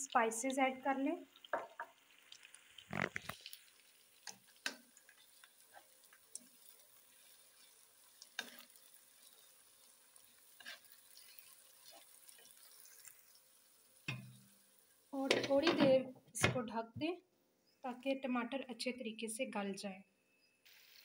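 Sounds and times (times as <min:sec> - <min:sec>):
frying sizzle: 0:00.0 - 0:16.0, 0:20.6 - 0:21.0
spatula scraping pan: 0:08.2 - 0:09.4, 0:10.5 - 0:13.0.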